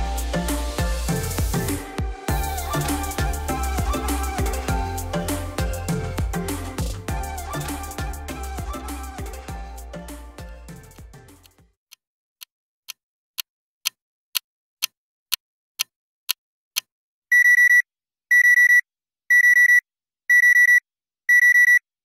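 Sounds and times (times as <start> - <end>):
alarm clock beeping: 17.3 - 21.8.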